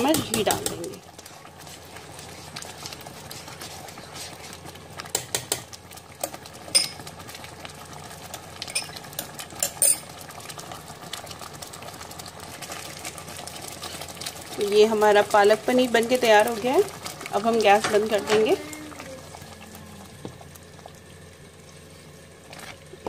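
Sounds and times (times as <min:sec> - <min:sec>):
metal spoon stirring pot: 0:00.0 - 0:01.0
gravy simmering and bubbling: 0:00.0 - 0:23.0.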